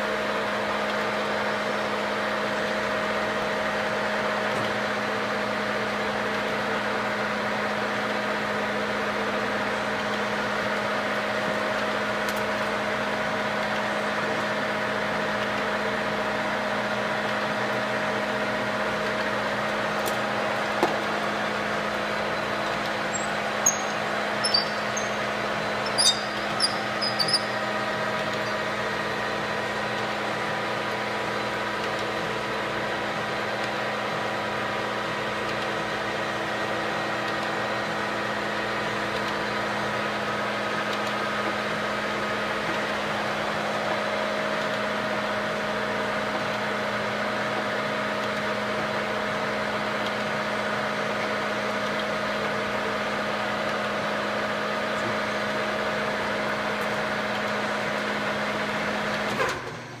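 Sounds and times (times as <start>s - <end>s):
metal lathe humming: 19.3s - 31.1s
faint whining gear tones: 22.1s - 28.8s.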